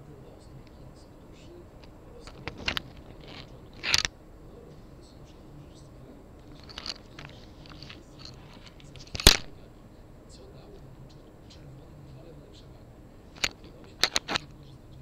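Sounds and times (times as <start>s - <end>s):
hands rustling objects: 0.6s - 9.7s.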